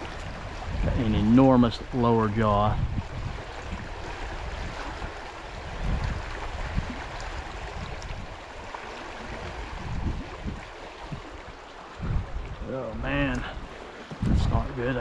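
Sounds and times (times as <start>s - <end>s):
low microphone rumbles: 0.0s - 8.4s, 9.2s - 15.0s
stream rushing over gravel: 0.0s - 15.0s.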